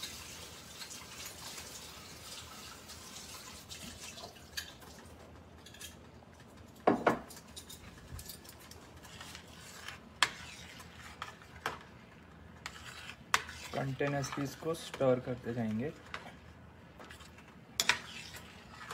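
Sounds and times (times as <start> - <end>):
metal utensils clinking on pans: 17.8 - 18.9.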